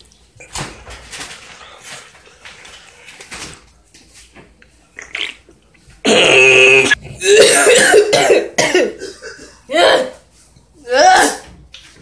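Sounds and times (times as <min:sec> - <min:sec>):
throat-clearing: 0:06.0 - 0:08.9
man coughing and choking: 0:06.1 - 0:09.6.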